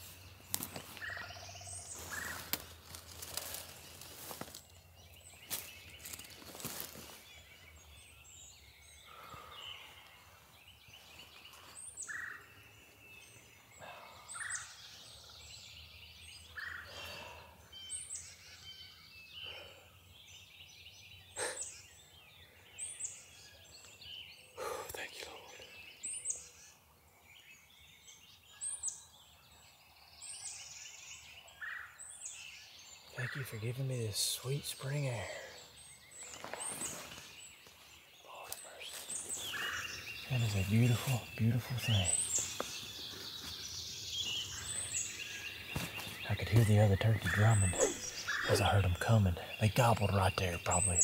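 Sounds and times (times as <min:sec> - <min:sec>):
dry leaves and feathers rustling: 0:00.0 - 0:07.6, 0:36.1 - 0:41.1, 0:42.2 - 0:48.4
songbirds singing and chirping: 0:00.0 - 0:51.0.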